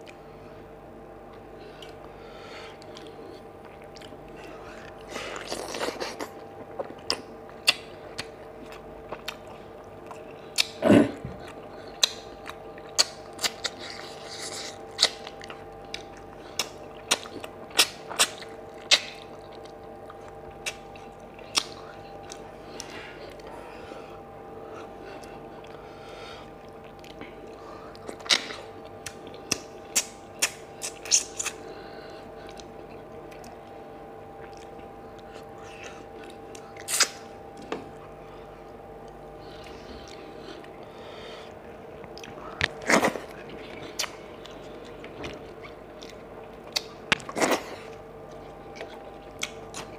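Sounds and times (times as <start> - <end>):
man chewing wetly: 0.0 - 0.6, 1.2 - 49.9
faint steady hum: 0.0 - 49.9
lip smacks and clicks: 21.5 - 23.5, 28.3 - 31.6.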